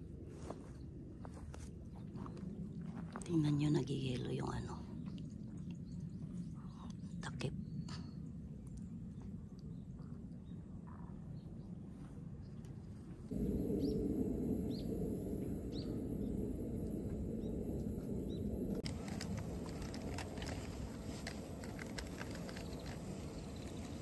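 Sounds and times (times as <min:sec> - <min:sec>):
bird chirps: 0:15.6 - 0:16.4
ticks and crackles: 0:18.7 - 0:24.0.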